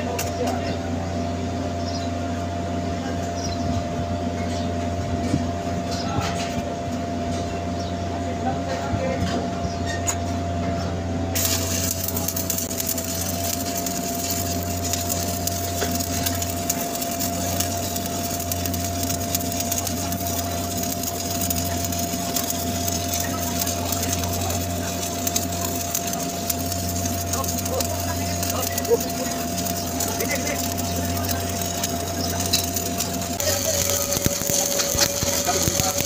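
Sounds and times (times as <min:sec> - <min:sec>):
arc welding crackling: 0:00.0 - 0:00.7, 0:11.3 - 0:36.0
steady low hum: 0:00.0 - 0:36.0.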